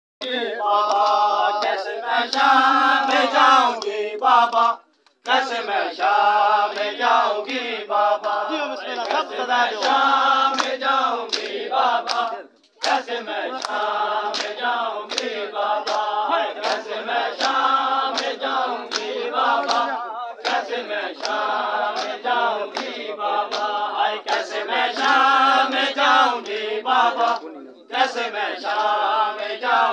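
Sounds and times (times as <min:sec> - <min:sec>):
men chanting in chorus: 0:00.2 - 0:29.9
hands slapping chests: 0:00.8 - 0:02.5, 0:08.2 - 0:25.3.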